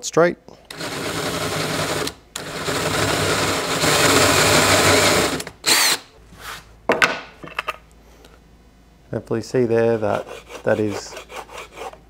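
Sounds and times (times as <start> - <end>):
hand drill boring into particleboard: 0.7 - 6.0.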